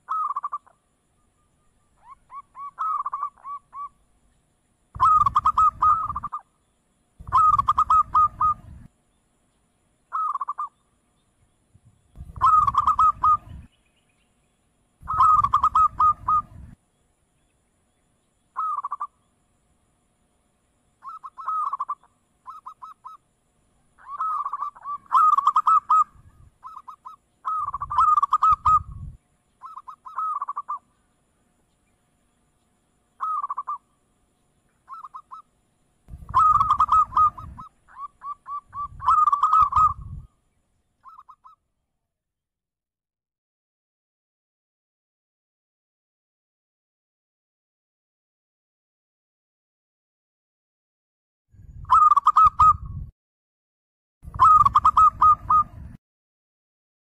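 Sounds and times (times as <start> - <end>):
dove cooing: 0.0 - 0.8, 2.0 - 4.0, 4.9 - 6.4, 7.2 - 8.9, 10.1 - 10.7, 12.2 - 13.7, 15.0 - 16.7, 18.6 - 19.1, 21.0 - 23.2, 24.0 - 30.9, 33.2 - 33.8, 34.9 - 35.4, 36.2 - 40.3, 41.0 - 41.6, 51.9 - 52.9, 54.3 - 55.9.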